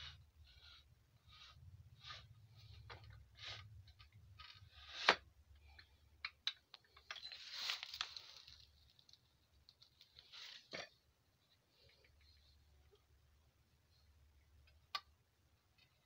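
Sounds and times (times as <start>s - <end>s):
metal parts clicking and scraping: 6.8s - 8.8s.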